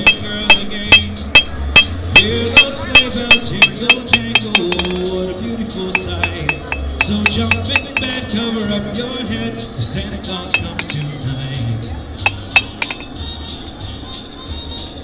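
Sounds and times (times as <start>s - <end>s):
hammer striking iron on anvil: 0.0s - 5.1s, 5.9s - 8.2s, 10.5s - 11.2s, 12.2s - 13.2s
music: 0.0s - 15.0s.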